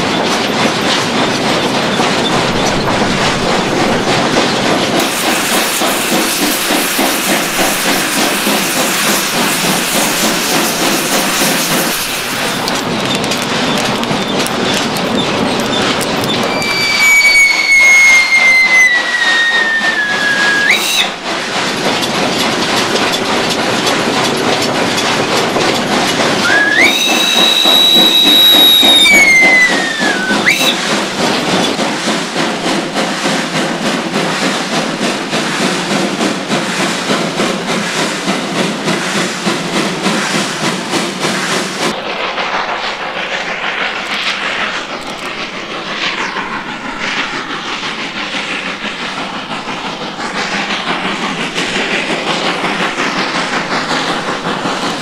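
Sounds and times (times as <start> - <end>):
locomotive engine rattling: 0.0 - 55.0
steam locomotive whistle blasts: 16.5 - 21.2, 26.4 - 30.8.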